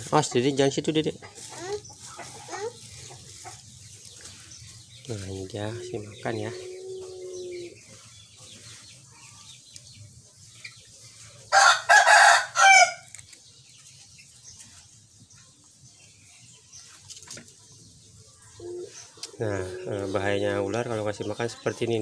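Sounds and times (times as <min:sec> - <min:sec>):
rooster crowing: 0:11.5 - 0:13.1.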